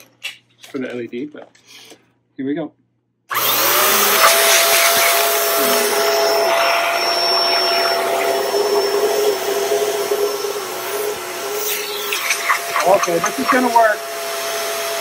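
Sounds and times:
vacuum cleaner running: 3.3s - 15.0s
high-pitched whine: 5.5s - 14.2s.

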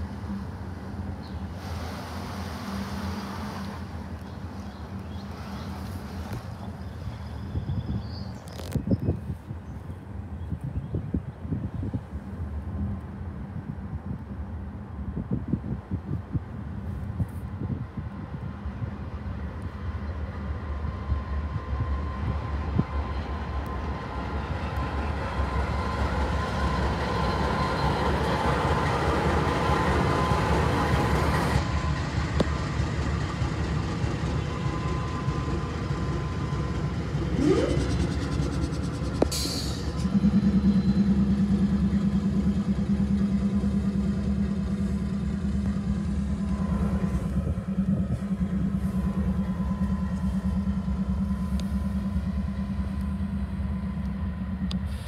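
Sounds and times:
freight train rumbling: 0.0s - 55.0s
steady low drone: 11.4s - 55.0s
rising whine: 34.4s - 55.0s
car road noise: 34.6s - 55.0s.

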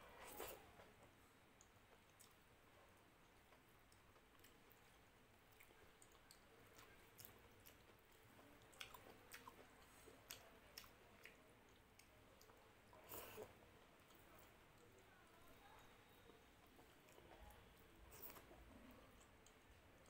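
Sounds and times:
chewing mouth sounds: 3.2s - 15.1s.

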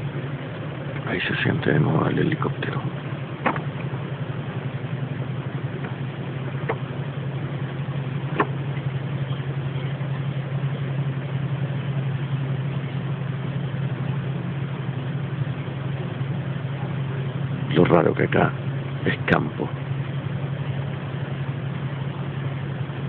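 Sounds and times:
low droning hum: 0.0s - 23.0s.

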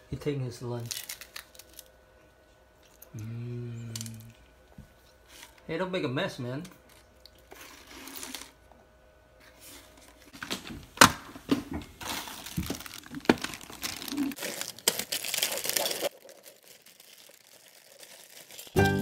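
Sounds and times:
plastic bag crinkling: 0.8s - 1.9s, 12.0s - 19.0s.

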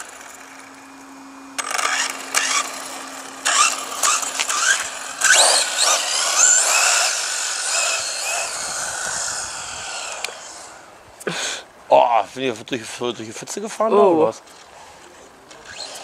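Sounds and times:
rc car electric motor whining: 0.0s - 11.0s, 14.5s - 16.0s.

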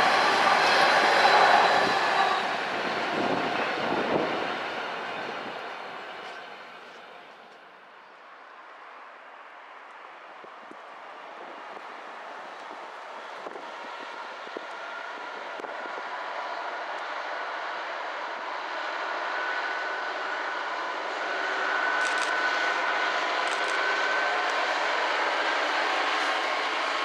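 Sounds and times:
steady whine: 0.0s - 7.8s
diesel locomotive engine approaching: 0.0s - 27.0s.

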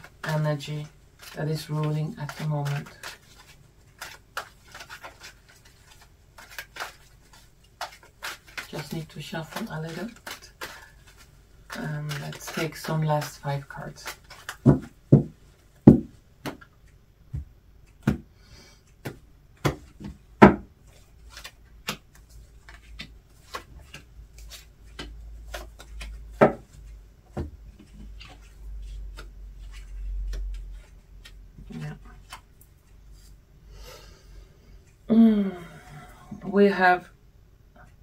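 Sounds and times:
cards tapping on tabletop: 24.9s - 26.7s.

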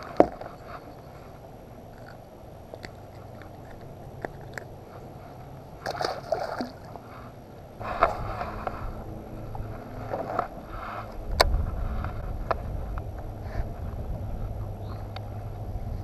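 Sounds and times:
steady low hum: 0.0s - 16.0s
fish splashing into water: 5.8s - 7.1s.

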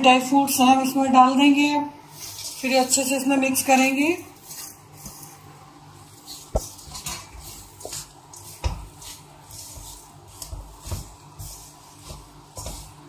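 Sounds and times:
spoon scraping a pan: 6.2s - 13.0s.

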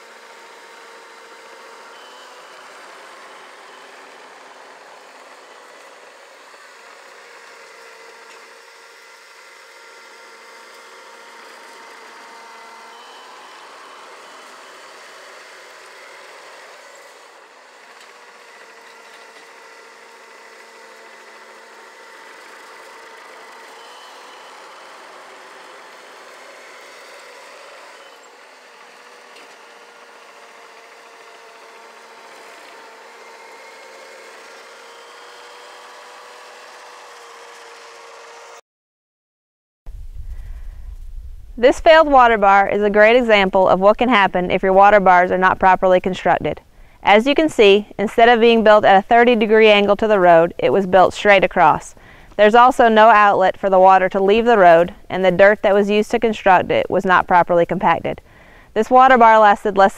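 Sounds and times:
diesel engine running: 39.9s - 59.9s.

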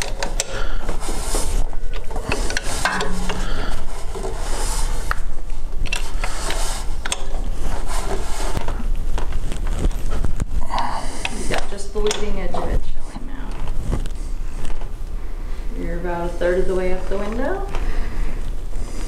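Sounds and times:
metallic clicks and rubbing: 2.2s - 4.8s.

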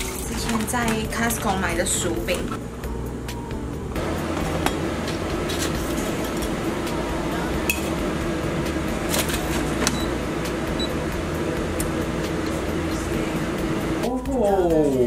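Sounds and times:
fan hum: 0.0s - 15.0s.

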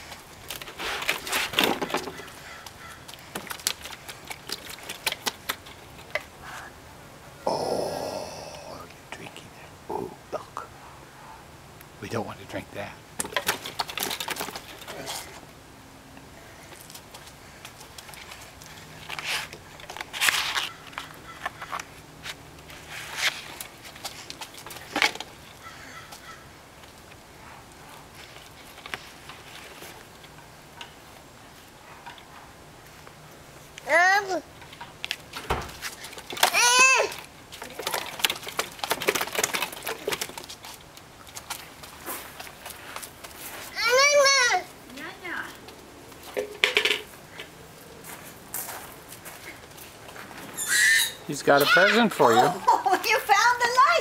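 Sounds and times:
paper rustling and crinkling: 0.0s - 6.1s, 16.8s - 25.4s, 35.1s - 44.0s.

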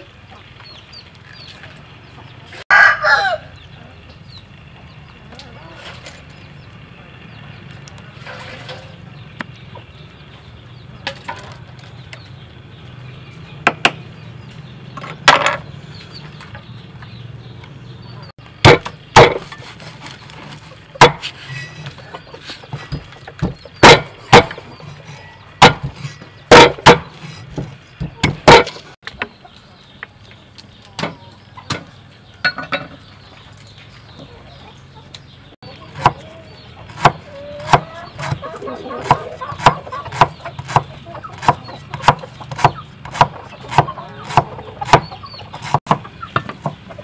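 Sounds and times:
knife chopping on wooden block: 18.6s - 19.5s, 22.9s - 24.6s, 25.6s - 28.8s, 39.0s - 46.8s.

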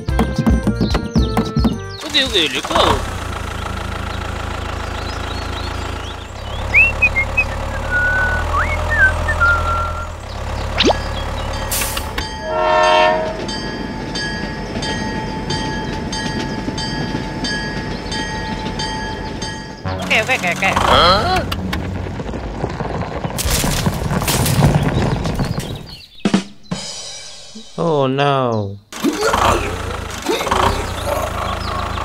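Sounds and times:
train clattering: 0.1s - 26.8s, 28.9s - 32.0s
train horn: 12.4s - 13.5s
low rumble: 19.3s - 25.9s.

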